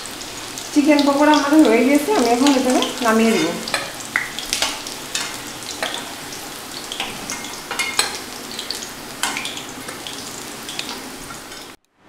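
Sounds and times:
food sizzling in hot oil: 0:00.0 - 0:11.8
spatula stirring: 0:02.2 - 0:11.8.

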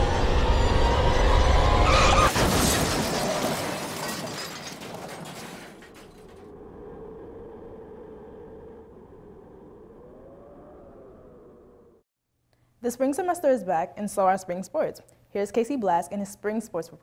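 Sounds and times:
car crash impact: 0:01.8 - 0:06.4
glass shattering and debris: 0:02.0 - 0:06.4.

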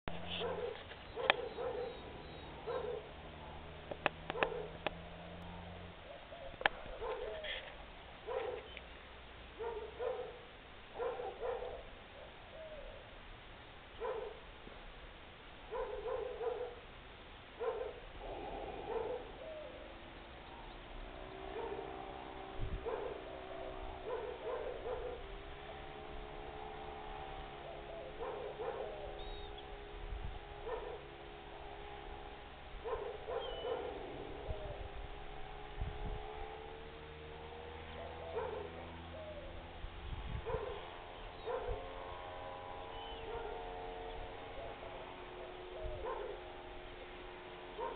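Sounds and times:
steady droning hum: 0:00.1 - 0:47.9
dog barking: 0:00.2 - 0:02.0, 0:02.6 - 0:03.7, 0:04.3 - 0:04.8, 0:05.4 - 0:07.5, 0:08.2 - 0:08.7, 0:09.6 - 0:11.9, 0:14.0 - 0:14.4, 0:15.7 - 0:16.8, 0:17.6 - 0:18.1, 0:18.8 - 0:19.4, 0:21.5 - 0:21.9, 0:22.8 - 0:23.3, 0:24.0 - 0:25.3, 0:28.1 - 0:29.0, 0:30.6 - 0:31.1, 0:32.8 - 0:34.0, 0:38.0 - 0:38.8, 0:40.4 - 0:40.8, 0:41.4 - 0:41.8, 0:43.3 - 0:43.6, 0:45.9 - 0:46.4.

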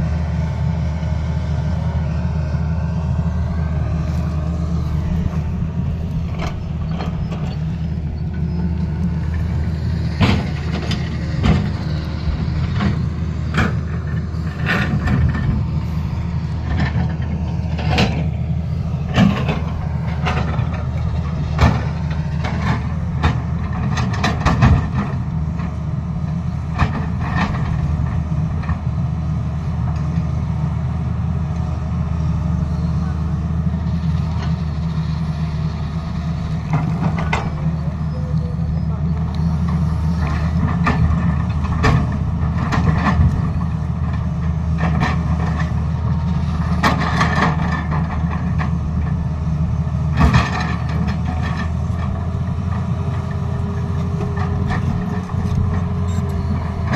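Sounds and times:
excavator diesel engine running: 0:00.0 - 0:56.9
sharp knocks and clatters: 0:10.1 - 0:11.8, 0:19.1 - 0:25.8.

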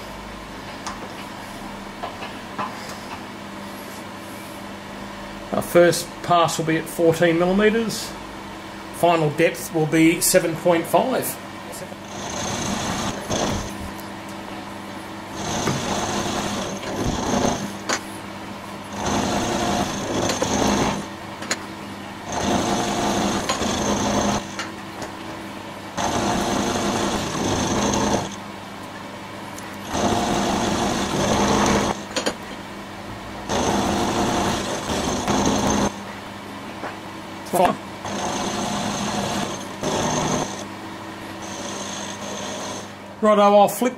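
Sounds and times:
spindle motor hum: 0:00.0 - 0:43.2
end mill cutting metal: 0:12.0 - 0:13.8, 0:15.4 - 0:17.9, 0:18.9 - 0:21.1, 0:22.3 - 0:24.7, 0:26.0 - 0:28.4, 0:29.8 - 0:32.4, 0:33.5 - 0:36.0, 0:38.0 - 0:40.7, 0:41.4 - 0:43.0.

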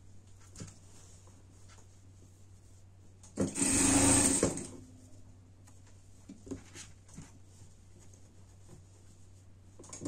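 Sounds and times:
sewing machine running: 0:03.4 - 0:04.7.

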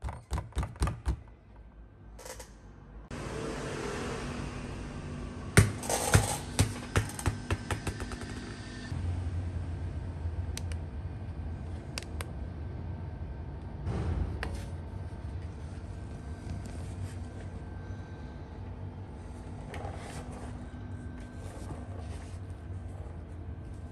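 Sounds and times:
air compressor humming: 0:03.1 - 0:09.0.

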